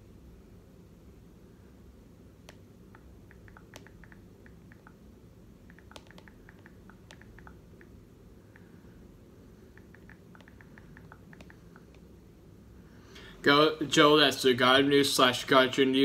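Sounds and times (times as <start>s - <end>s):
low room hum: 0.0s - 16.0s
faint typing clicks: 2.5s - 5.0s, 5.7s - 8.7s, 9.7s - 12.0s.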